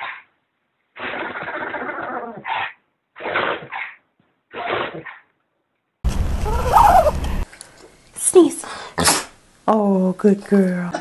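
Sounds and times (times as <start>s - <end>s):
rising and falling whine: 6.0s - 7.5s
steady low hum: 6.0s - 9.7s
dog sneezing and snorting: 9.0s - 9.3s.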